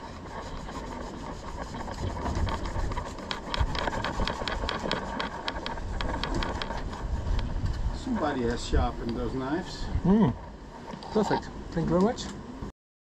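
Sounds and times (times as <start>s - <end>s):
knife sawing through rope: 0.0s - 8.4s
steady low rumble: 0.0s - 11.8s.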